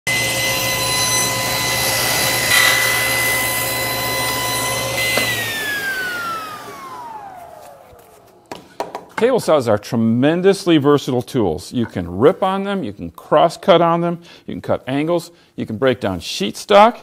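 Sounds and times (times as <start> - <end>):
table saw whine: 0.1 - 8.5
blade cutting wooden board: 0.2 - 8.3.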